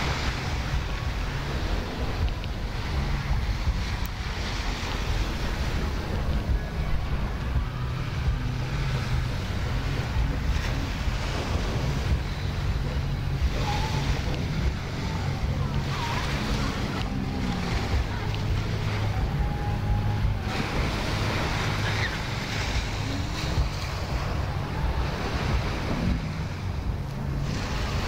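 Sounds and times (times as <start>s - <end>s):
waves washing on beach: 0.0s - 28.0s
wind buffeting microphone: 0.0s - 28.0s.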